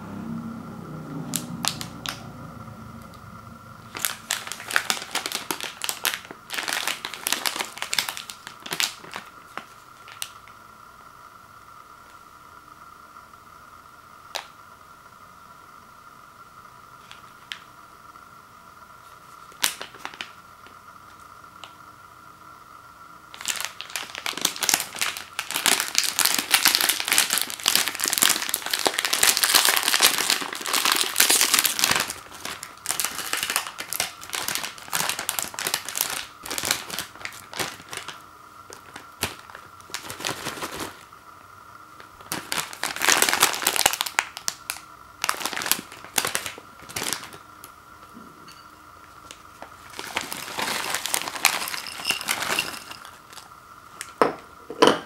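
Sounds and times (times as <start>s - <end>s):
snack bag crinkling and tearing: 1.3s - 2.3s, 3.8s - 10.5s, 19.3s - 20.4s, 23.3s - 41.1s, 42.0s - 47.7s, 49.2s - 54.2s.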